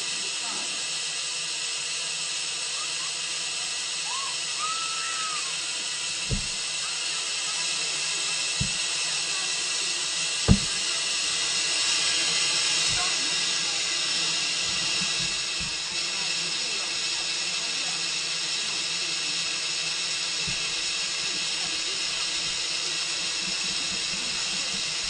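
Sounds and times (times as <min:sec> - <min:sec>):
car wash spraying water: 0:00.0 - 0:25.0
dull thumps: 0:06.2 - 0:06.6, 0:08.6 - 0:08.8, 0:10.5 - 0:10.8.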